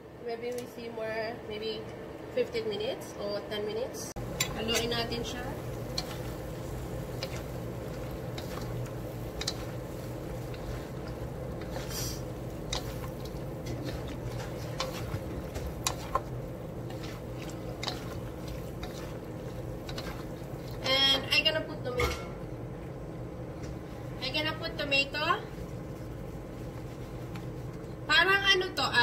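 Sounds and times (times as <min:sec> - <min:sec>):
steady low hum: 0:00.0 - 0:29.0
wooden spatulas scraping a wok: 0:04.3 - 0:21.2.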